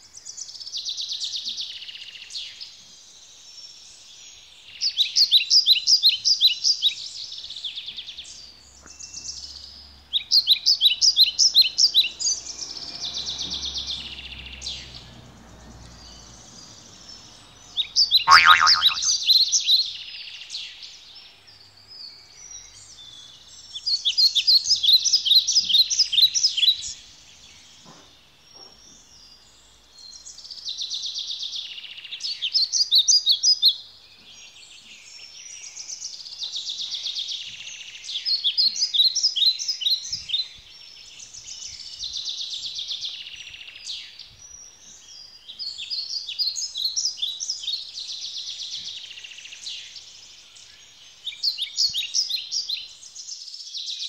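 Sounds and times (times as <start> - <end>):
songbird trilling: 18.3 - 19.2.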